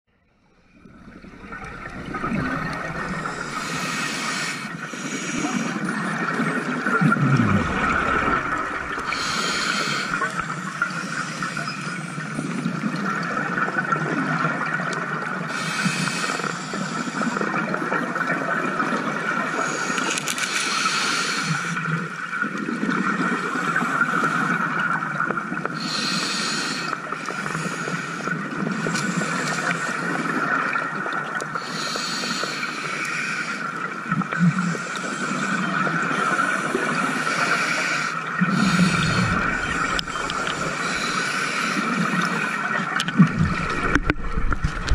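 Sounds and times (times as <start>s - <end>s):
steady underwater hiss: 0.4s - 14.0s, 14.6s - 22.5s, 23.2s - 44.9s
exhaled bubbles rushing underwater: 0.6s - 15.5s, 33.8s - 44.9s.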